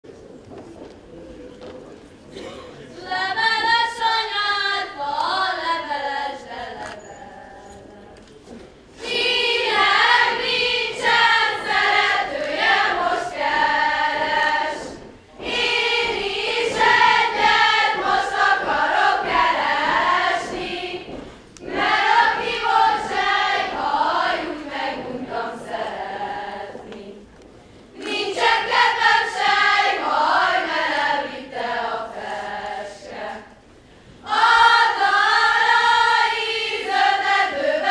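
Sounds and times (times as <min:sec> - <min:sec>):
girls singing unaccompanied: 0:02.9 - 0:37.9.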